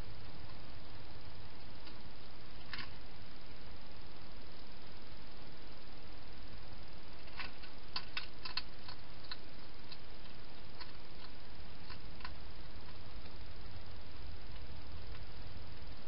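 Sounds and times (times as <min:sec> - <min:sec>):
steady background hiss: 0:00.0 - 0:16.0
hedgehog crunching dry food: 0:02.6 - 0:03.0, 0:07.2 - 0:13.4.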